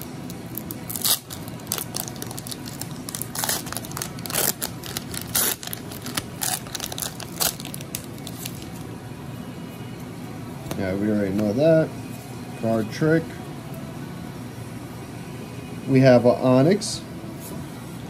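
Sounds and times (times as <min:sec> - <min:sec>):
foil wrapper tearing and crinkling: 0:00.0 - 0:08.8.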